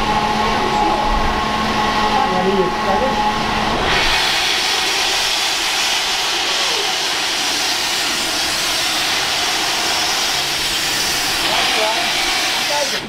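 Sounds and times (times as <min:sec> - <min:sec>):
steam locomotive hissing steam: 0:03.8 - 0:13.0.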